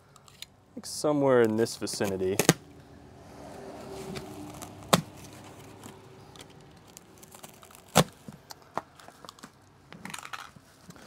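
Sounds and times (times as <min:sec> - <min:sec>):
crinkly foam handling noise: 0:03.8 - 0:11.0.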